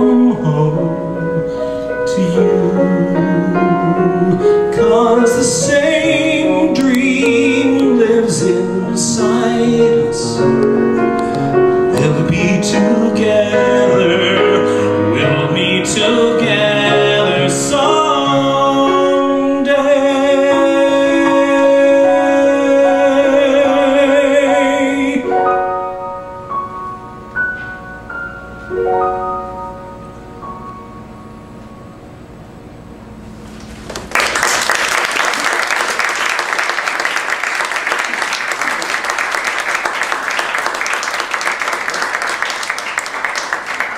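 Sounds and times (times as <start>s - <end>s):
man singing a long note: 0.0s - 26.0s
piano accompaniment: 0.0s - 43.9s
audience applauding: 33.6s - 43.9s.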